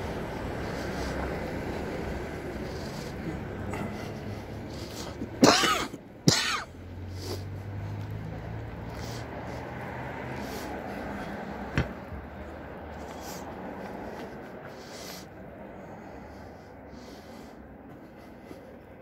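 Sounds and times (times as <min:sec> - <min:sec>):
faint street background: 0:00.0 - 0:19.0
person coughing: 0:05.4 - 0:06.7.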